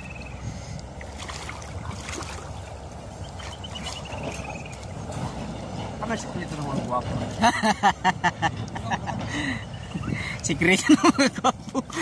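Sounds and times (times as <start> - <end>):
bird trilling: 0.0 - 0.4, 2.6 - 4.9
light water splashes: 0.0 - 7.4
river water sloshing: 0.0 - 12.0
wind rumble on microphone: 8.0 - 10.7.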